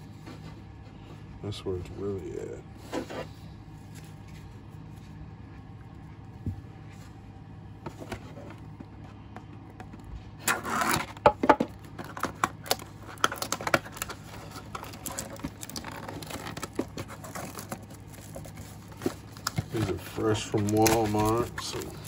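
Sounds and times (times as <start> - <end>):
foil packs crinkling: 10.4 - 22.0
cardboard box tearing: 12.1 - 22.0.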